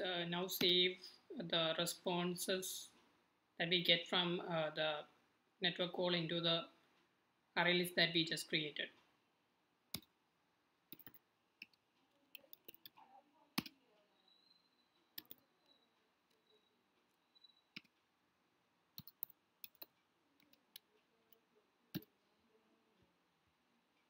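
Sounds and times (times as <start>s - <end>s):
computer keyboard typing: 10.9s - 13.8s, 15.2s - 15.5s, 19.0s - 22.1s.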